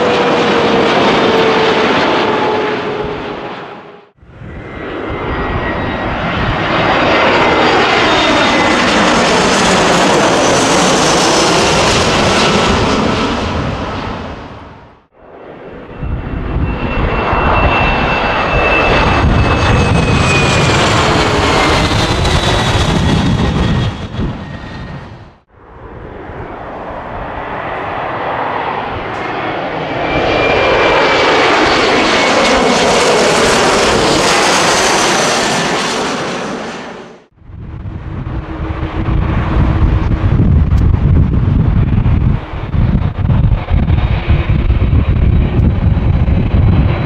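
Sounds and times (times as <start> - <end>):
airliner engines roaring past: 0.0 - 47.0
high jet engine whine: 0.0 - 47.0
wind on microphone: 2.3 - 15.0, 15.6 - 32.6, 37.4 - 47.0
low rumble: 37.4 - 47.0.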